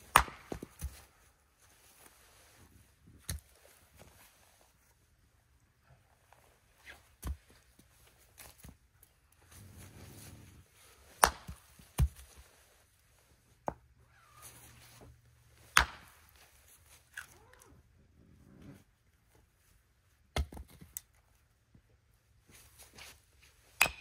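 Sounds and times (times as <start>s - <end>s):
hatchet chopping wood: 0.0s - 1.0s, 11.2s - 12.2s, 15.7s - 16.2s, 23.8s - 24.0s.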